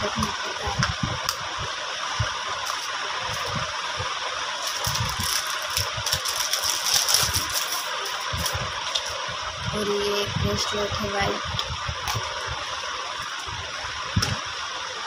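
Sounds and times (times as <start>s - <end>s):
jewellery rattling and rustling: 4.6s - 9.2s.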